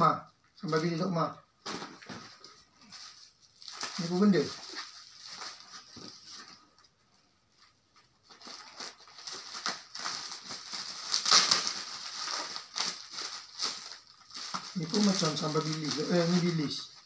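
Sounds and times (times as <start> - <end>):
plastic bag crinkling: 1.7 - 6.9, 8.2 - 17.0.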